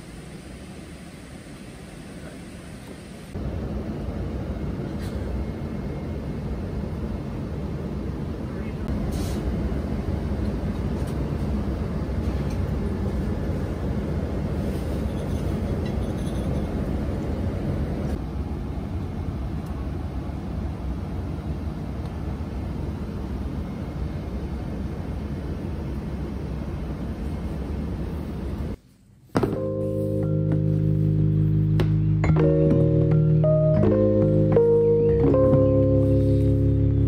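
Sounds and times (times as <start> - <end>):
airliner cabin rumble and air rush: 0.0 - 28.8.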